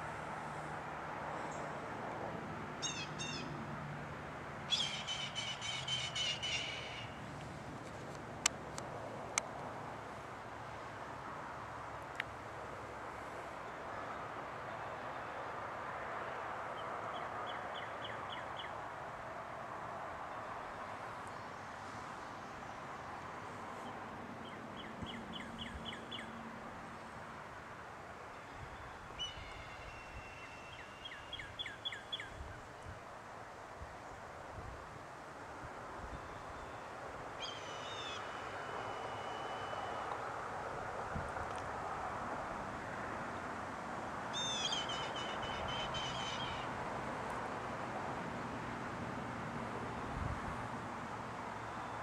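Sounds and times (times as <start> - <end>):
steady outdoor hiss: 0.0 - 52.0
bird calling: 2.8 - 3.5, 4.7 - 7.2, 36.2 - 40.0, 44.3 - 46.7.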